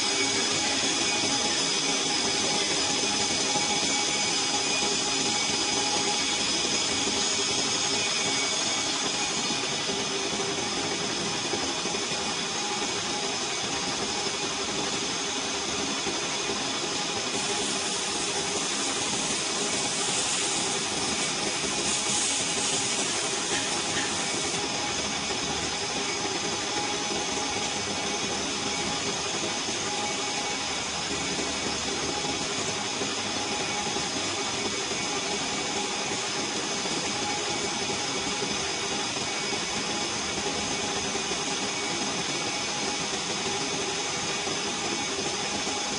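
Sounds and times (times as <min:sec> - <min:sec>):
lathe running: 0:00.0 - 0:45.9
bright cutting hiss: 0:17.3 - 0:24.7.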